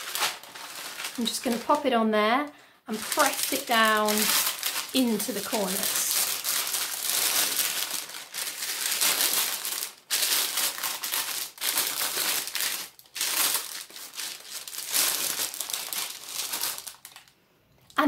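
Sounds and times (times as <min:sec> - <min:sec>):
baking paper crinkling: 0:00.0 - 0:02.1, 0:02.9 - 0:17.4.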